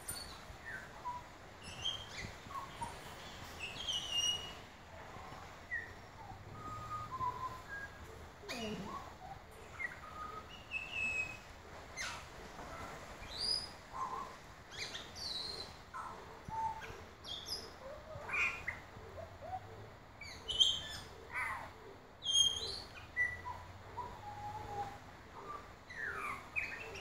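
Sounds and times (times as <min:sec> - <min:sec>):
bird whistling song: 0:00.0 - 0:04.6, 0:05.7 - 0:11.4, 0:20.2 - 0:21.5, 0:22.2 - 0:27.0.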